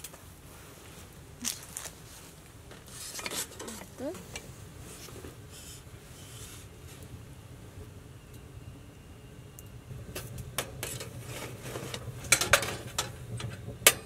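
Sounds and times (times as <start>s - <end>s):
metal clinks and scrapes: 2.8s - 4.4s
rasping metal scrape: 2.9s - 3.8s.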